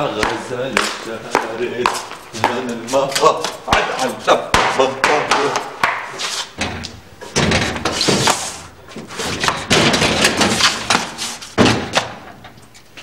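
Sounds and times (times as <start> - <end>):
loud bangs on a door: 3.7 - 6.8, 7.4 - 8.4, 9.4 - 10.6, 11.6 - 12.2.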